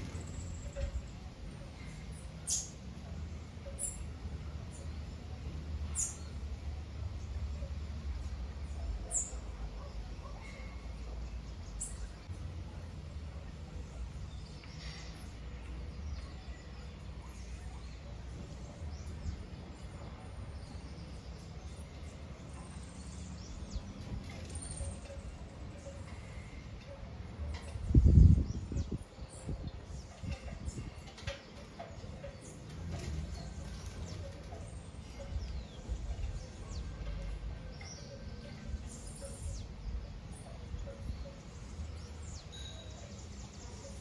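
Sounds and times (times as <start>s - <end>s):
bird chirps and calls: 0.0s - 6.5s, 7.3s - 12.3s
faint bird chirps: 13.4s - 44.0s
wind rumbling on microphone: 27.4s - 37.8s
wind gusting over microphone: 27.5s - 31.4s.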